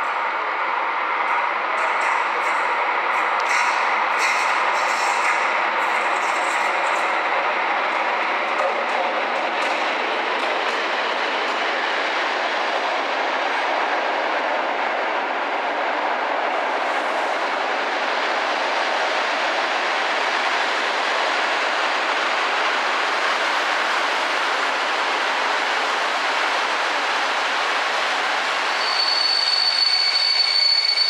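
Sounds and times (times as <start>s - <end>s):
train wheels on rails: 0.0s - 31.0s.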